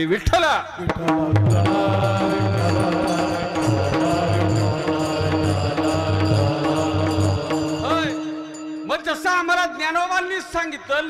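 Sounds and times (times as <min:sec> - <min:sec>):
drum beating steady rhythm: 0:00.8 - 0:09.0
voices chanting: 0:01.2 - 0:08.7
held drone note: 0:01.5 - 0:09.0.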